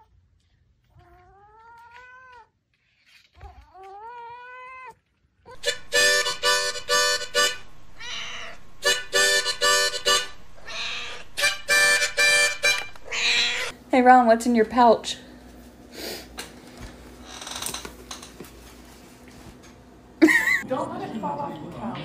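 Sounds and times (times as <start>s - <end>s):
cat meowing: 0.9s - 2.5s, 3.4s - 5.6s, 8.0s - 8.6s, 10.6s - 11.5s, 13.0s - 13.7s
harmonica chords: 5.6s - 13.6s.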